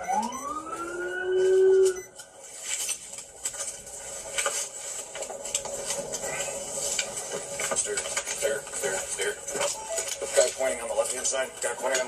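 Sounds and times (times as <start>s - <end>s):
police siren yelp and wail: 0.0s - 2.1s.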